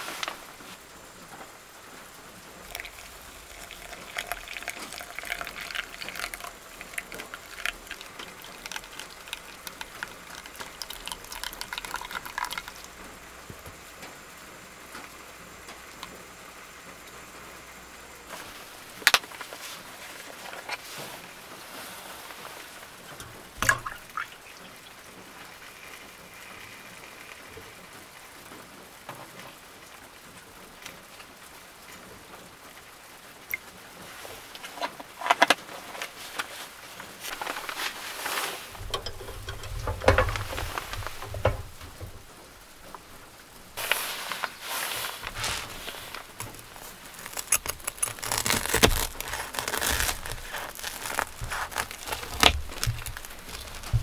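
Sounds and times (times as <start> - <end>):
rain on van roof: 0.0 - 54.0
milk pouring into mug: 2.5 - 13.7, 23.1 - 27.6, 37.3 - 42.0.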